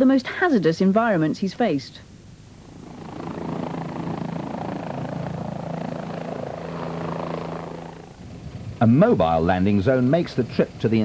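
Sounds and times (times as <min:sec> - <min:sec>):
helicopter flying overhead: 0:02.1 - 0:10.8.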